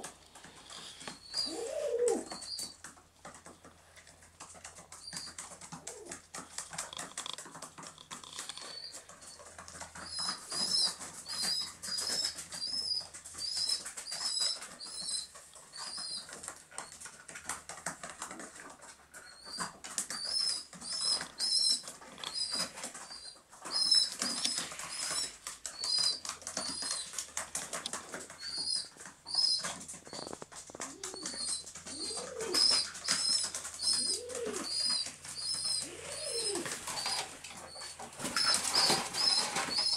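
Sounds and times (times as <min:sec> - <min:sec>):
pigeon squab squeaking: 0:00.7 - 0:02.9, 0:04.9 - 0:06.2, 0:07.4 - 0:17.1, 0:19.2 - 0:39.9
wing flapping: 0:21.8 - 0:39.9.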